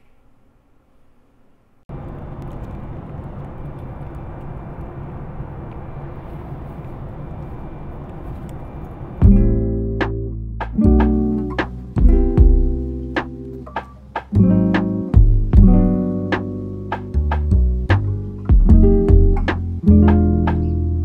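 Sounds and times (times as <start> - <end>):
airliner cabin noise: 1.9 - 9.3
acoustic guitar music: 9.2 - 21.0.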